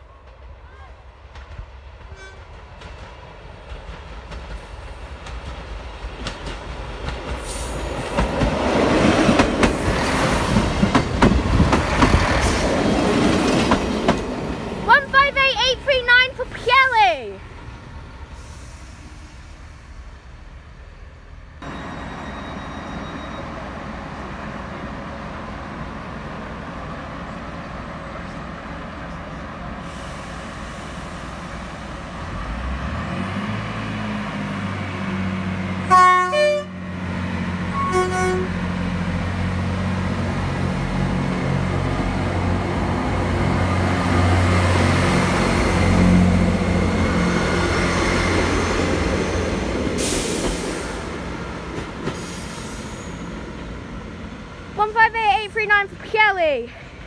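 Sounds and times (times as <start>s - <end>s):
diesel train engines droning: 0.0s - 57.0s
train horn blasts: 2.1s - 2.6s, 35.8s - 36.8s, 37.7s - 38.6s.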